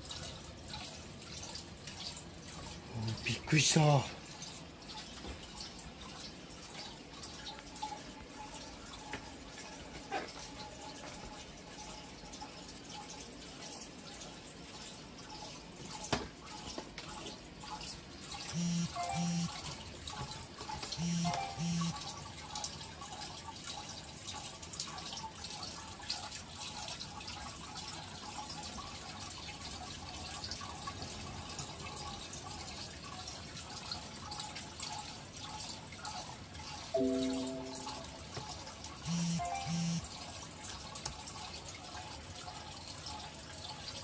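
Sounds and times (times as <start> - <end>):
aquarium filter water trickling: 0.0 - 44.0
short electronic beeps: 18.6 - 19.6, 21.0 - 22.0, 39.1 - 40.0.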